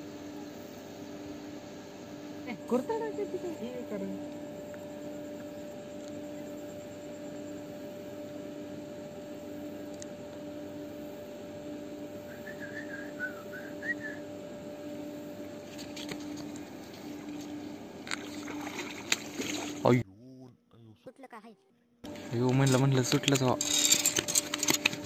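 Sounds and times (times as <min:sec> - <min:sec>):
faint pulsing drone: 0:00.0 - 0:20.0
low background hum: 0:00.0 - 0:25.0
clicks and rustles: 0:22.1 - 0:25.0.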